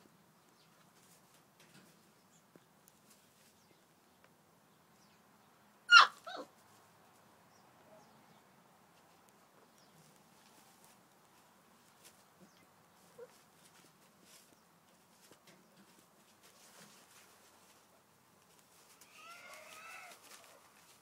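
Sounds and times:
faint ticks and rustles: 0:00.0 - 0:05.1, 0:08.8 - 0:21.0
puppy yelping: 0:05.9 - 0:06.5.

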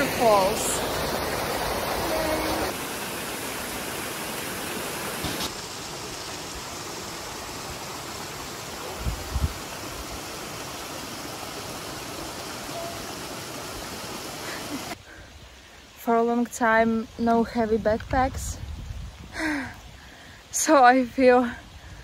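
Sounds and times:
waterfall rushing water: 0:00.0 - 0:15.0.

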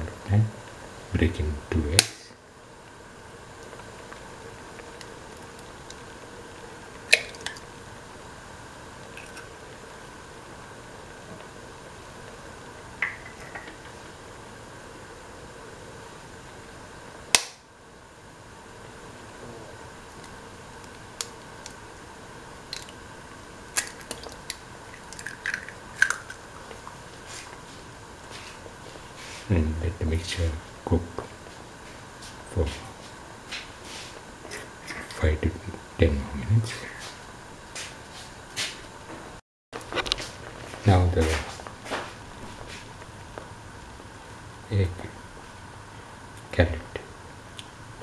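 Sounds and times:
stew simmering in a pot: 0:00.2 - 0:29.5
egg cracking: 0:06.9 - 0:07.8, 0:09.0 - 0:09.8, 0:22.6 - 0:23.1, 0:23.7 - 0:27.6.

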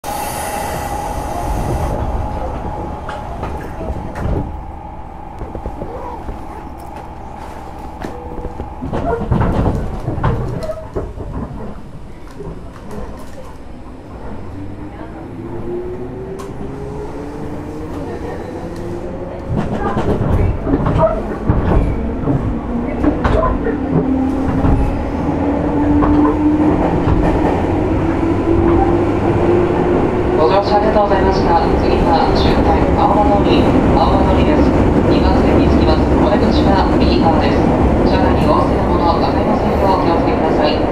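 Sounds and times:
train car hum: 0:00.0 - 0:40.9
low rumble with clattering knocks: 0:01.7 - 0:15.1, 0:19.2 - 0:27.8.

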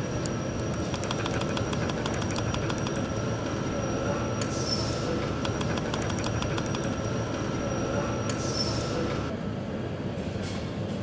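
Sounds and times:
workshop machinery noise: 0:00.0 - 0:11.0.

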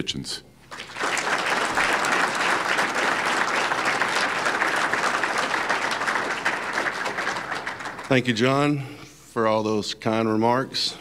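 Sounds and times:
crowd applauding: 0:00.7 - 0:08.8.

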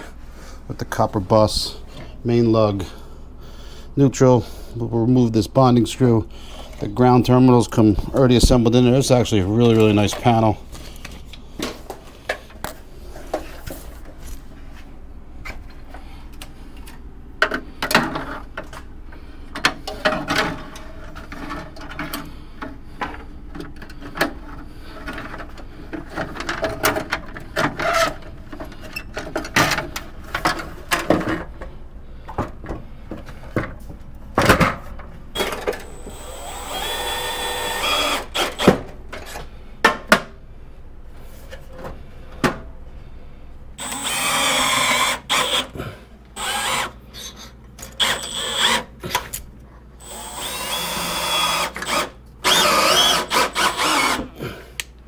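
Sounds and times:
cordless drill running: 0:35.4 - 0:38.8, 0:43.8 - 0:45.8, 0:46.4 - 0:47.0, 0:48.0 - 0:48.9, 0:50.0 - 0:54.3.

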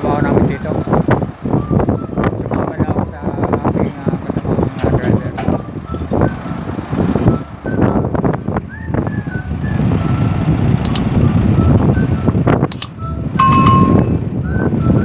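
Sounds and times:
diesel engine rumble: 0:00.0 - 0:15.0
short high chirps: 0:12.7 - 0:14.3.

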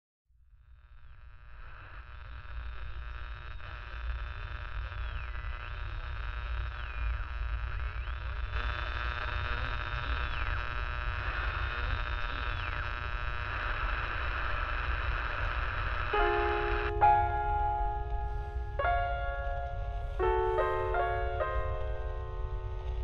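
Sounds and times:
dense steady hum: 0:01.0 - 0:23.0
thin high gliding whine: 0:04.7 - 0:23.0
piano note: 0:16.1 - 0:23.0
low rumble: 0:16.3 - 0:23.0.

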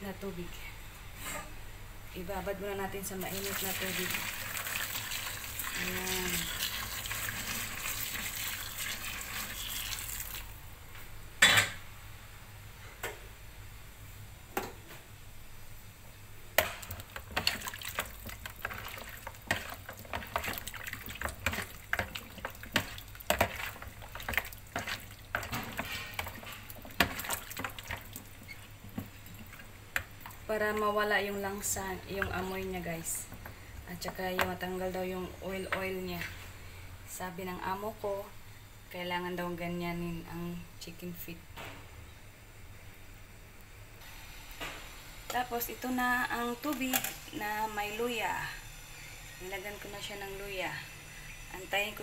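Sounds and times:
hot water pouring and splashing: 0:03.2 - 0:10.6, 0:16.8 - 0:30.9.

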